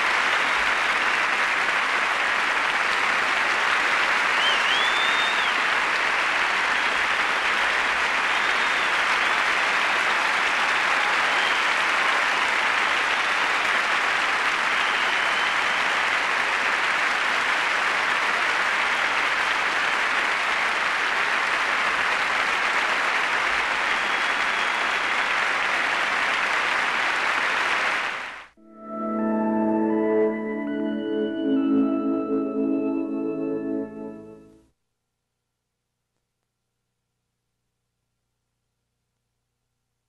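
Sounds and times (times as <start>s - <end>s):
audience applauding: 0.0s - 28.6s.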